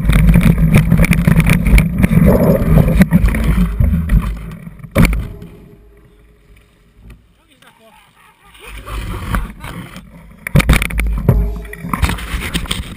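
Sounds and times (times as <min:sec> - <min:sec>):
knocks from bumps: 0:00.0 - 0:05.9, 0:10.5 - 0:12.9
mountain bike rattling over rocks: 0:00.0 - 0:06.2, 0:08.8 - 0:12.9.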